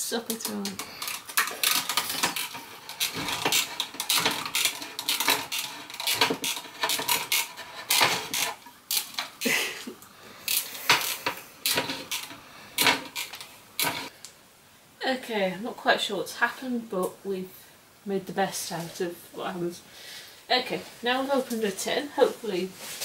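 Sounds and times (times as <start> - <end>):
can opener clicking and scraping: 0.3 - 9.6, 10.5 - 14.1.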